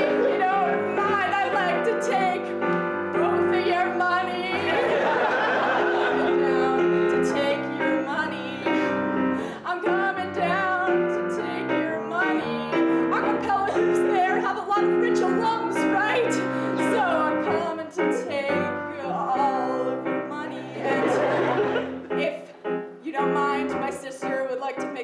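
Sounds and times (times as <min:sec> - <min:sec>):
woman singing: 0:00.0 - 0:05.0, 0:05.8 - 0:21.5, 0:22.1 - 0:25.0
piano chords: 0:00.0 - 0:25.0.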